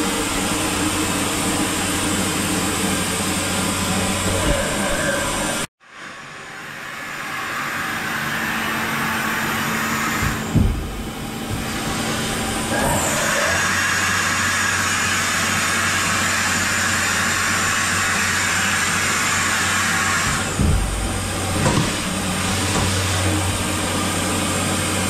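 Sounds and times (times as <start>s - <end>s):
machining centre mechanical whirr: 0.0s - 25.0s
steady hum: 10.0s - 13.6s, 17.3s - 25.0s
low clunk: 10.2s - 11.7s, 20.3s - 23.0s.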